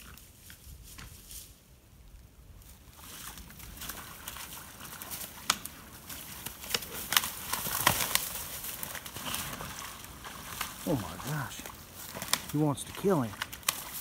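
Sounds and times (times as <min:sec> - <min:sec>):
rustle of leaves and brush: 0:00.0 - 0:14.0
antlers clicking and snapping: 0:03.8 - 0:14.0.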